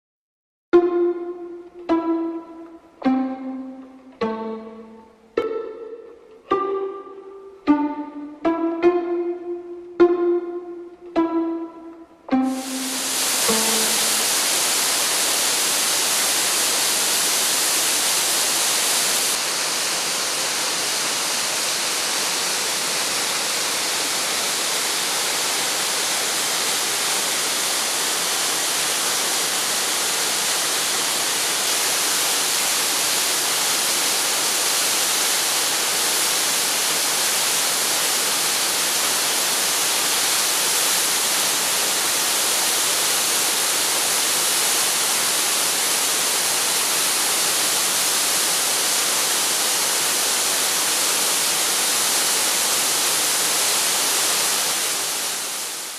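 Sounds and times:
waterfall rushing: 12.3s - 55.9s.

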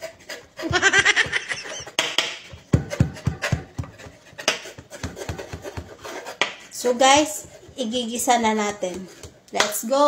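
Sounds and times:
woman laughing: 0.6s - 2.0s
knife chopping on wooden board: 0.6s - 7.9s.

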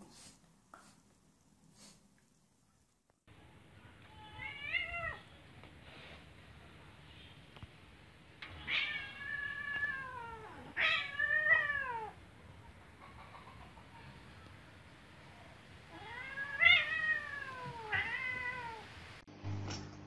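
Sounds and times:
cat yowling: 4.1s - 5.3s, 8.6s - 12.2s, 15.9s - 18.9s.

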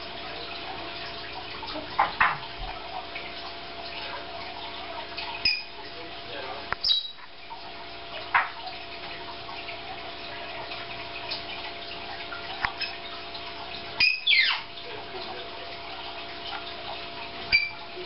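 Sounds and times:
sharp falling squeaks: 6.8s - 7.2s.

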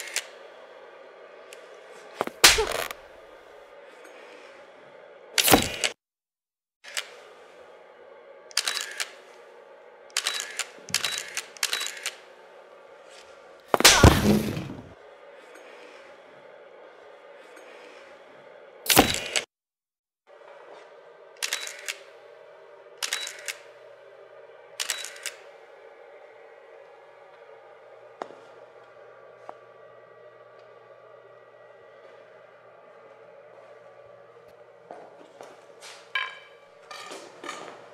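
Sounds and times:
camera shutter double clicks: 10.2s - 12.2s, 21.4s - 22.0s, 23.0s - 23.6s, 24.8s - 25.4s
loud crash: 13.8s - 15.0s.

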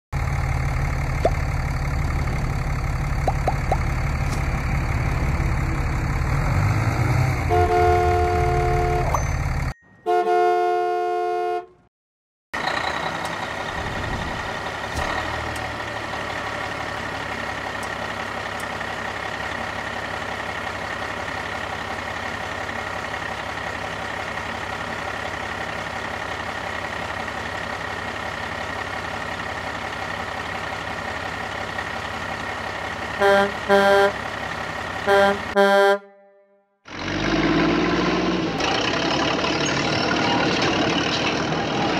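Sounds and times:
truck engine rumbling: 0.1s - 11.9s, 12.6s - 41.9s
engine hum with high whine: 0.2s - 11.8s, 12.6s - 36.2s
vehicle horn honking: 7.4s - 9.2s, 10.0s - 11.9s, 33.2s - 34.2s, 35.0s - 36.8s.

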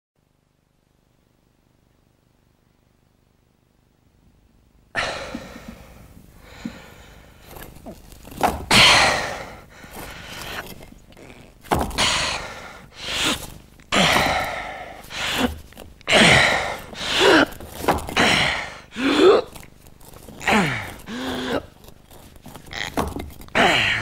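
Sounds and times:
man gasping breaths: 5.0s - 7.6s, 8.7s - 10.7s, 11.9s - 17.6s, 18.2s - 19.6s, 20.4s - 21.8s, 23.5s - 24.0s
man groaning: 13.9s - 15.5s, 16.1s - 17.6s, 18.2s - 19.6s, 20.4s - 21.7s, 23.5s - 24.0s.

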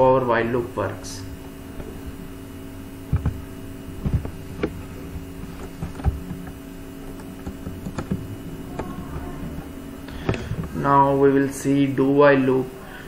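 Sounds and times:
steady electrical hum: 0.0s - 13.0s
soft knocks and clicks: 3.1s - 10.8s.

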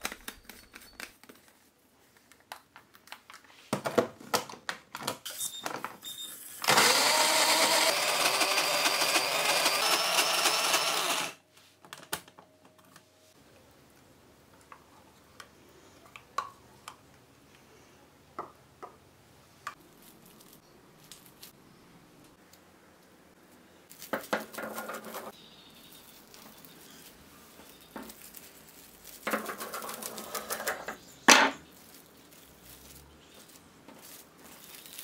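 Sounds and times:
cling film crinkling: 25.8s - 30.5s, 31.6s - 35.0s.

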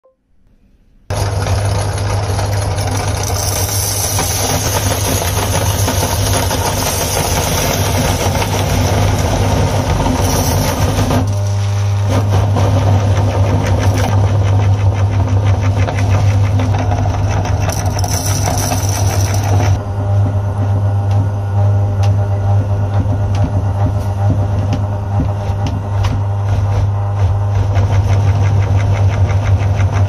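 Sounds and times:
candies crunching in grinder: 1.1s - 19.8s
meat grinder motor humming: 1.1s - 30.0s.

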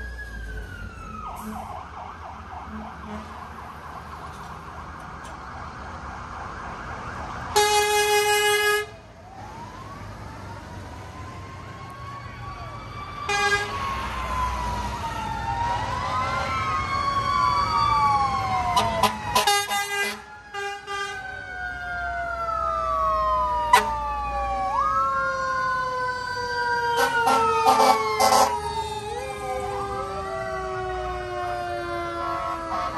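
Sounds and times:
fire truck sirens wailing: 0.0s - 32.9s
truck engines rumbling: 0.0s - 32.9s
air horn blasts: 2.7s - 3.4s, 7.6s - 8.9s, 13.3s - 13.7s, 18.8s - 21.2s.

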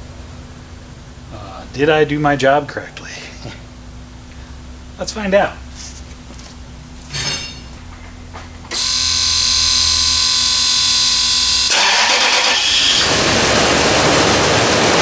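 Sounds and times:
engine firing and running: 8.6s - 15.0s
engine starter cranking whine: 8.7s - 15.0s.

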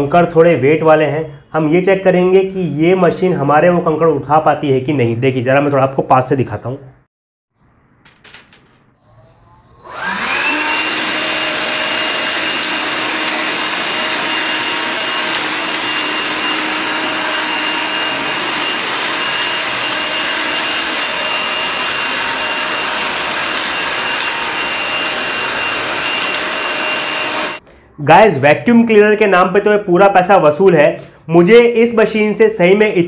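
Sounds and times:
vacuum blower motor whining: 9.4s - 27.6s.

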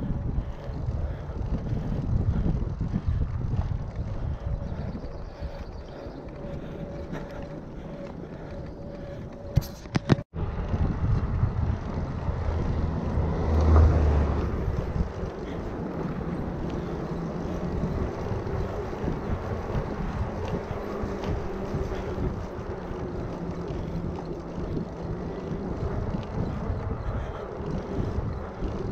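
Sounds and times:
tyres rolling on asphalt: 0.0s - 28.9s
wind buffeting microphone: 0.0s - 28.9s
low rumble: 10.4s - 28.9s.

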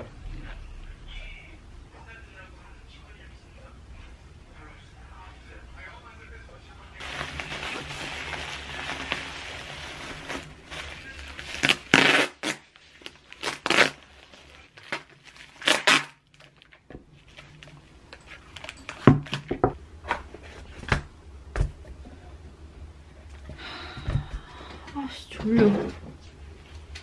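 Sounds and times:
packing tape ripping: 7.0s - 17.7s
bubble wrap crinkling: 7.0s - 19.6s.

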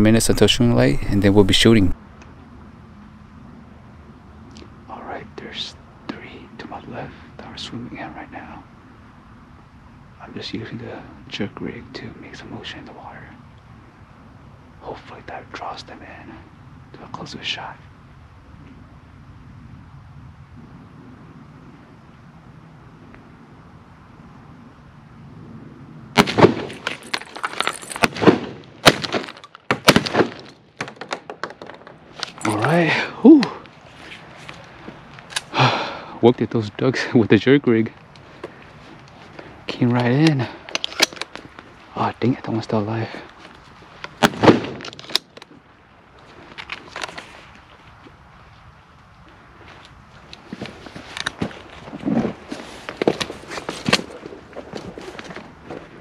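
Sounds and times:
shotgun shots: 26.2s - 27.0s, 28.0s - 30.5s, 44.2s - 44.8s
faint rustling: 33.5s - 35.6s, 37.8s - 56.0s
sharp gun clicks: 40.7s - 41.4s.

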